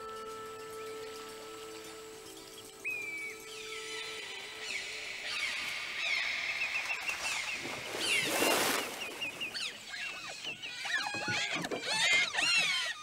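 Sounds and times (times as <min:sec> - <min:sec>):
chirps and whistles: 0:00.0 - 0:11.4
otters squealing and chittering: 0:09.5 - 0:13.0.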